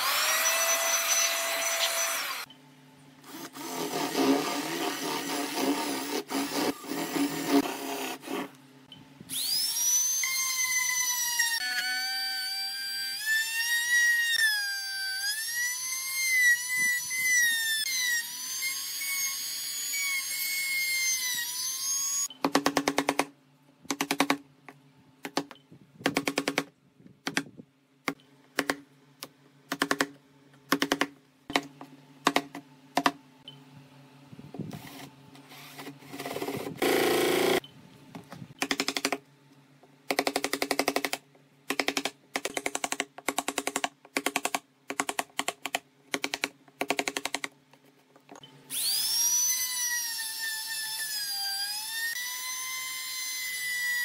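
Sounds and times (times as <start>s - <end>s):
trim router whining: 0.0s - 2.5s.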